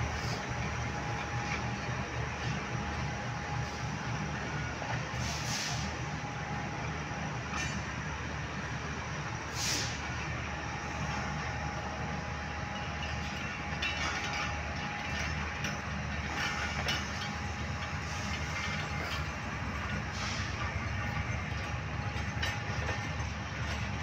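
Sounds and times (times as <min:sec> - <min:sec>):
wheels clacking over rail joints: 0:00.0 - 0:03.1, 0:12.7 - 0:24.0
train rumbling: 0:00.0 - 0:24.0
short hiss: 0:05.2 - 0:05.9, 0:09.5 - 0:10.0.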